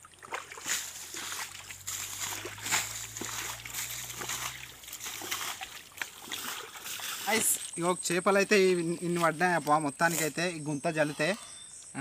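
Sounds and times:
fish thrashing in shallow water: 0:00.0 - 0:08.0.

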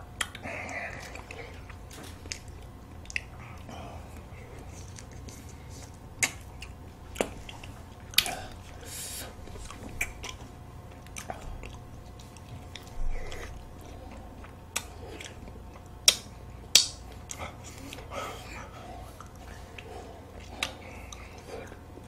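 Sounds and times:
biting and chewing ice cream: 0:00.0 - 0:22.0
sharp clicks and smacks: 0:06.2 - 0:06.5, 0:16.0 - 0:17.4.

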